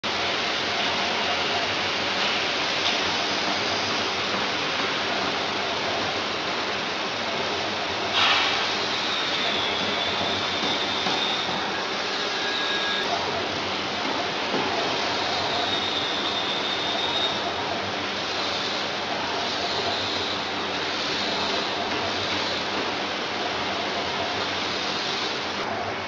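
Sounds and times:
glass cutting machine hissing: 0:07.6 - 0:13.4, 0:14.3 - 0:25.6.

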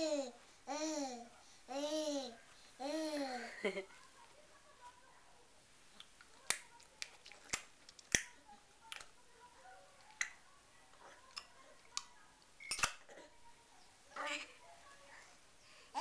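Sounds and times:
baby wet mouth clicks: 0:06.0 - 0:09.1.

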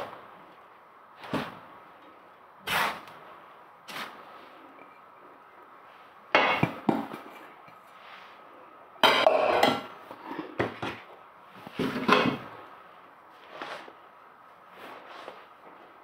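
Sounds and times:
spatula scraping in a frying pan: 0:02.6 - 0:03.1.

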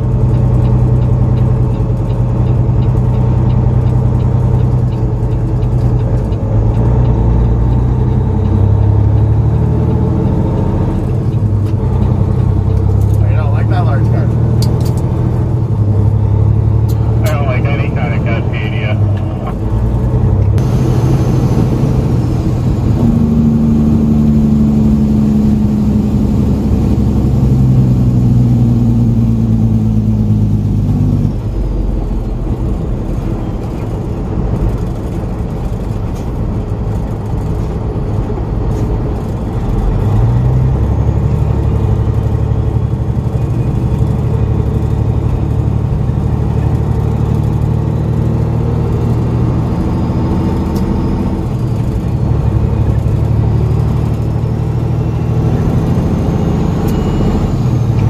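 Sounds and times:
truck diesel engine from cab: 0:00.0 - 0:58.0.

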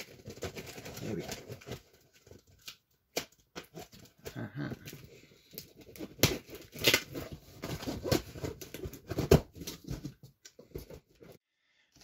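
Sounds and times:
cardboard rustling and scraping: 0:05.6 - 0:11.4.

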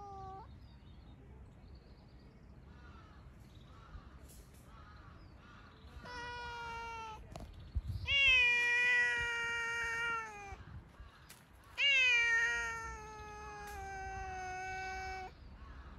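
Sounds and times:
cat meowing: 0:00.0 - 0:00.5, 0:06.0 - 0:07.3, 0:08.0 - 0:10.6, 0:11.8 - 0:15.3.

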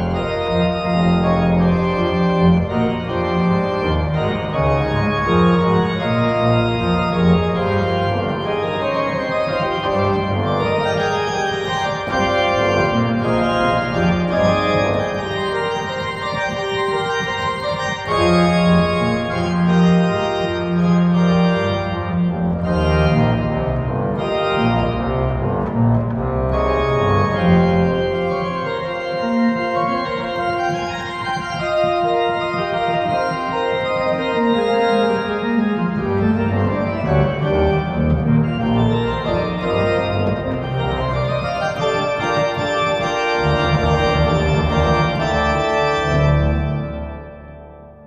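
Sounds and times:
church pipe organ playing: 0:00.0 - 0:48.0.

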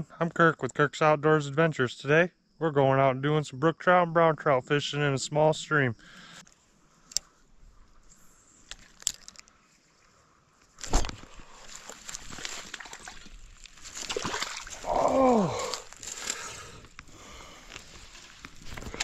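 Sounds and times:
small clicks: 0:08.6 - 0:09.6
sloshing and rustling: 0:10.8 - 0:14.9
short falling vocal cry: 0:14.8 - 0:15.8.

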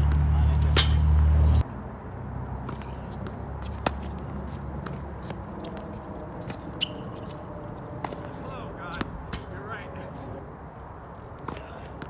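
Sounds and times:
racket hitting tennis ball: 0:00.0 - 0:01.3, 0:02.6 - 0:07.4, 0:08.0 - 0:09.6
ball bounces and shoes on court: 0:00.0 - 0:01.4, 0:02.4 - 0:09.6, 0:11.1 - 0:12.0
low outdoor rumble: 0:00.0 - 0:12.0.

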